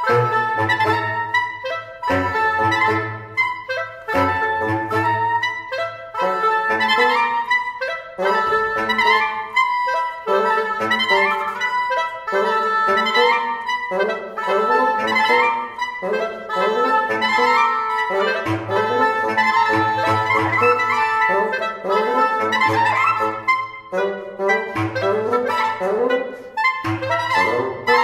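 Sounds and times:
reed quintet chamber music: 0:00.0 - 0:28.0
low bass instrument line: 0:26.9 - 0:28.0.

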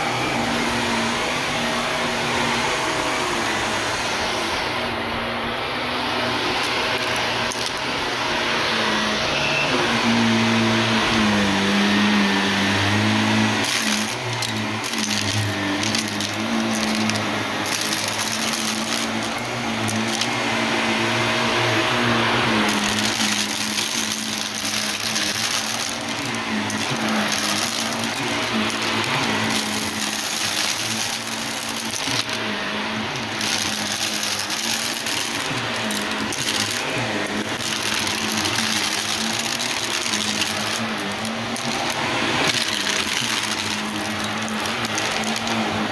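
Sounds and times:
vacuum cleaner motor humming: 0:00.0 - 0:45.9
gravel rattling through vacuum: 0:21.9 - 0:45.9.

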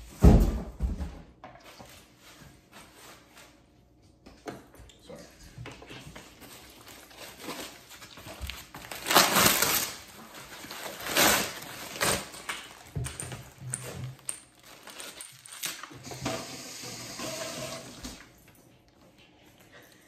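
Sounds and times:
foam packing wrap crinkling: 0:06.3 - 0:16.1.

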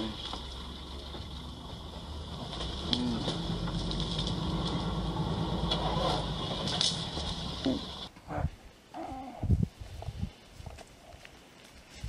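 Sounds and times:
vehicle engine rumbling: 0:00.0 - 0:08.1.

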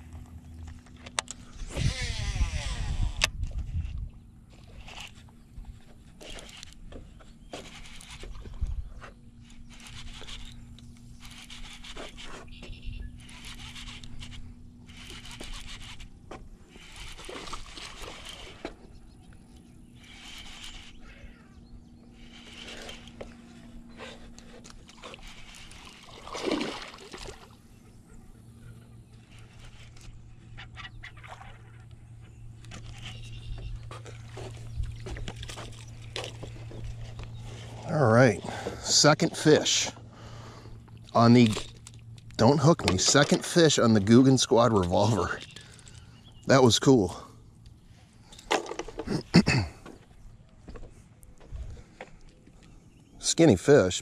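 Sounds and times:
faint steady hum: 0:00.0 - 0:54.0
fishing reel cranking: 0:01.6 - 0:03.3, 0:07.6 - 0:08.4, 0:09.4 - 0:18.7, 0:19.9 - 0:21.4, 0:22.1 - 0:23.4, 0:24.0 - 0:26.1.

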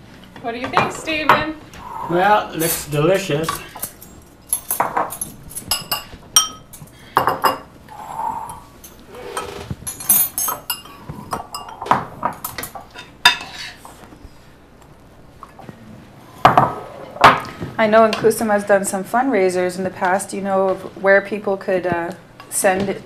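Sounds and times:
spoons clinking on ceramic bowls: 0:02.6 - 0:07.7, 0:08.8 - 0:13.8.

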